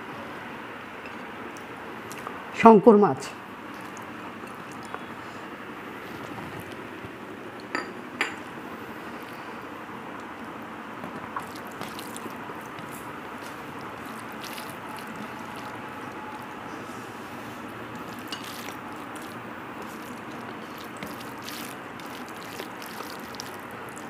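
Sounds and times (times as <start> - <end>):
bowl clinking against plate: 7.8 - 8.4
hand mixing rice squishing: 11.0 - 24.0.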